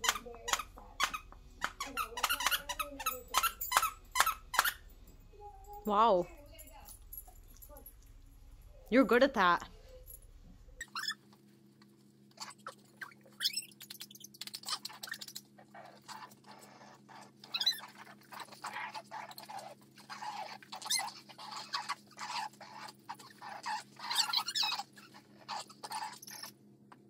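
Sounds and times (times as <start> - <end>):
dog scuffling with toys: 0.0 - 8.8
steady low hum: 0.0 - 12.4.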